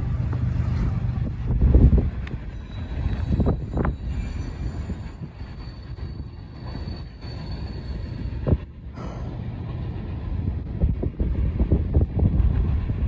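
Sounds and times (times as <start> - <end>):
freight cars rumbling past: 0.0 - 13.0
high wheel squeal: 2.4 - 8.7.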